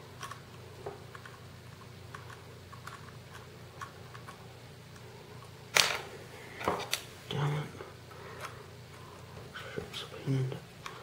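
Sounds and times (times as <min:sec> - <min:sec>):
small parts clicking and tapping: 0:00.2 - 0:06.0.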